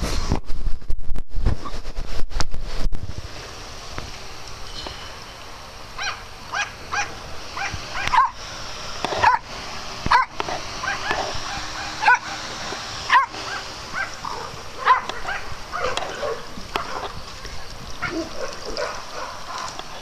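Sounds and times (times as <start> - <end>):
small dog yipping: 6.0 - 8.4, 10.1 - 12.4.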